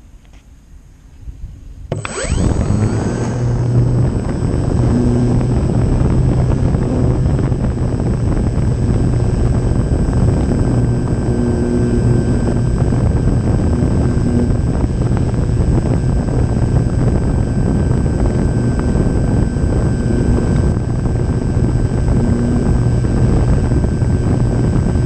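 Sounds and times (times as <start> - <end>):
model airplane electric motor and propeller: 1.9 - 25.0.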